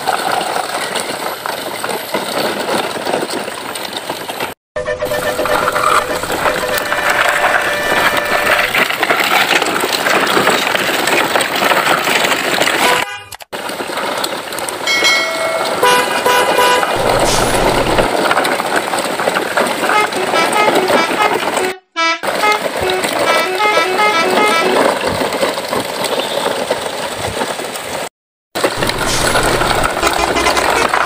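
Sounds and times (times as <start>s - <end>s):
truck horn toots: 4.8s - 8.8s, 12.8s - 13.4s, 15.5s - 18.1s, 19.8s - 25.0s, 28.9s - 31.0s
truck engine noise: 4.8s - 12.9s, 13.5s - 27.3s, 28.6s - 31.0s.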